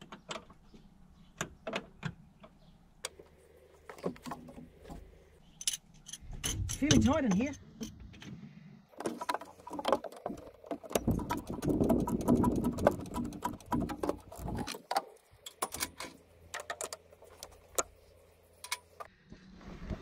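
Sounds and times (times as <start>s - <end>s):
metal tools clicking and clattering: 5.5s - 8.3s.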